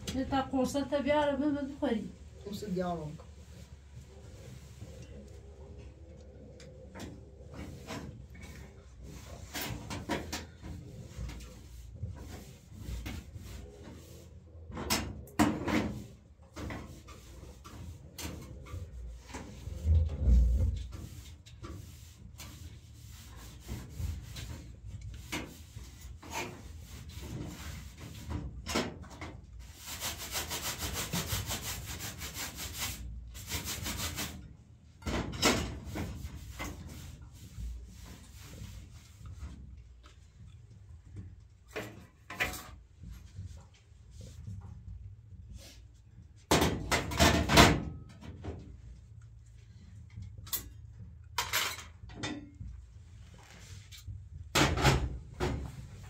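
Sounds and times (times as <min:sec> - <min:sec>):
cloth scrubbing stove top: 0:07.4 - 0:14.5, 0:15.6 - 0:28.6, 0:29.6 - 0:34.6, 0:35.5 - 0:40.0.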